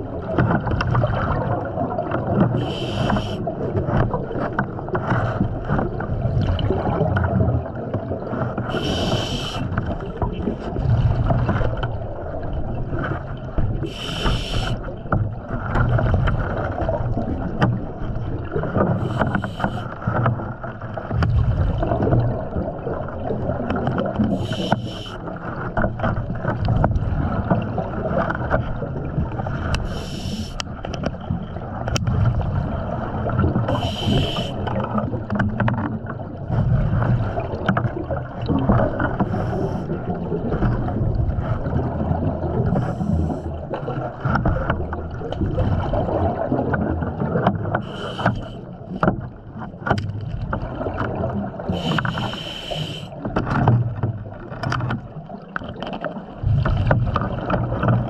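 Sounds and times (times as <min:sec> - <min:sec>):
breathing regulator hiss: 0:02.6 - 0:03.4, 0:08.8 - 0:09.6, 0:13.9 - 0:14.8, 0:24.3 - 0:25.2, 0:29.8 - 0:30.6, 0:33.7 - 0:34.6, 0:47.8 - 0:48.6, 0:51.7 - 0:53.1.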